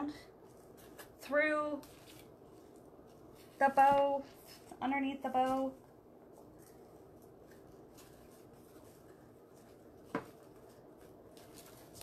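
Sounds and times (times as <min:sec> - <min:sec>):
faint rustling of twine: 0:00.0 - 0:12.0.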